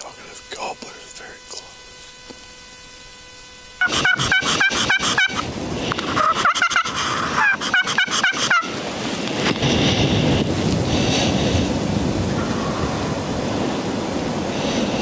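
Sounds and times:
steady rushing noise: 0:00.0 - 0:15.0
turkey gobbling: 0:03.8 - 0:08.8, 0:12.3 - 0:13.0.

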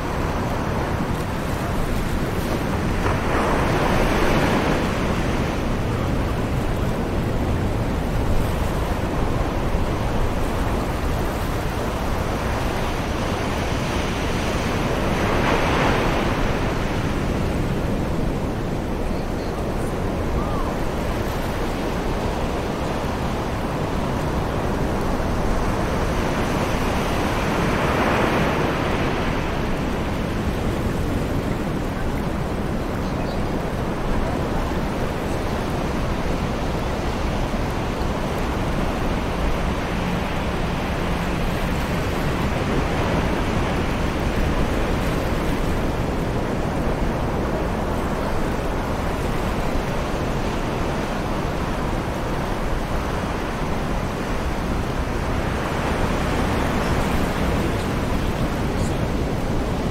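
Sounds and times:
distant ocean waves breaking: 0:00.0 - 0:59.9.

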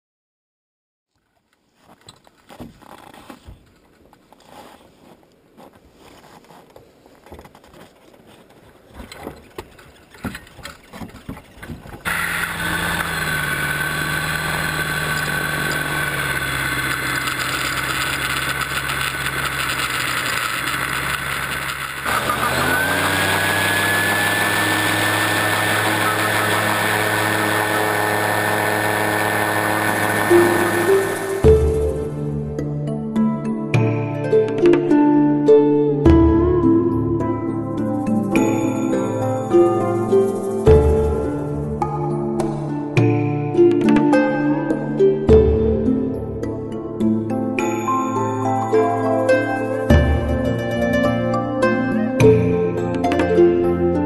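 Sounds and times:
faint clicks and rustling: 0:01.1 - 0:12.1
gyroplane engine running: 0:09.4 - 0:32.3, 0:40.0 - 0:41.7.

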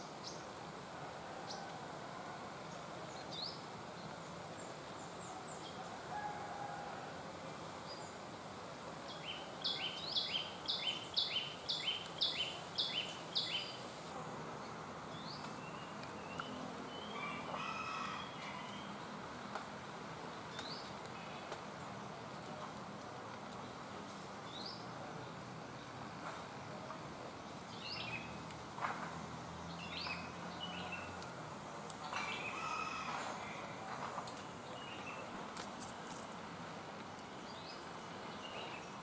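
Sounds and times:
steady background hiss: 0:00.0 - 0:39.0
songbird calling: 0:09.1 - 0:13.8.

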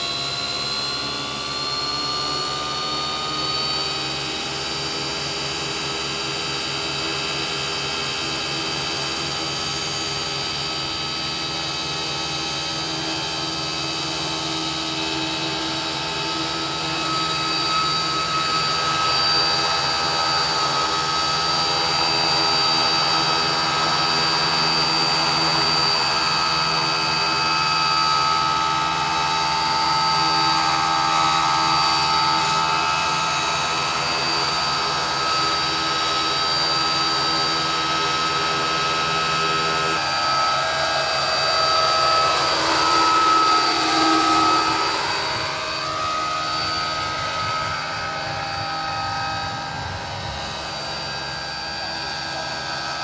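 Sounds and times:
model helicopter motor whine: 0:00.0 - 0:53.0.

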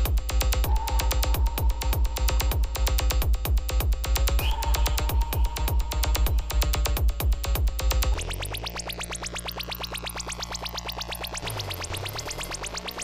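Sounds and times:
pounding kick drum: 0:00.0 - 0:08.2
electronic dance music: 0:00.0 - 0:12.9
held bass note: 0:00.6 - 0:08.0.

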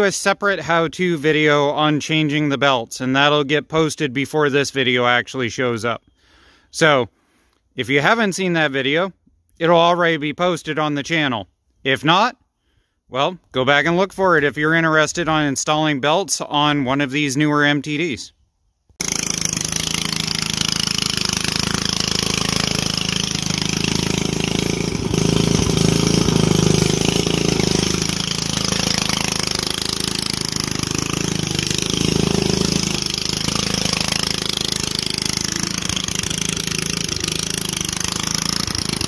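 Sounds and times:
engine running steadily: 0:19.0 - 0:39.0.

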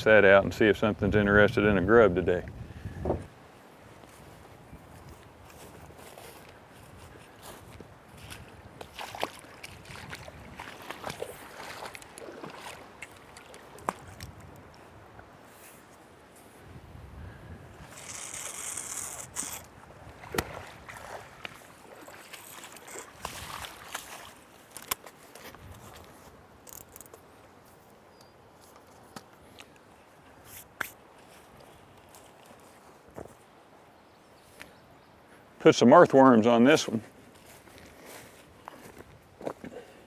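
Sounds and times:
boots splashing through water: 0:05.6 - 0:14.6, 0:19.8 - 0:26.0
faint outdoor background: 0:24.0 - 0:40.0.

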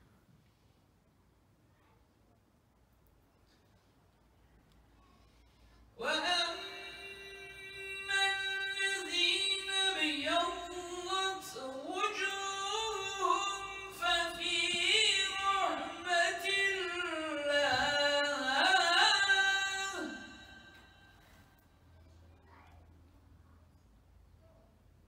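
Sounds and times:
man chanting: 0:06.0 - 0:21.0.

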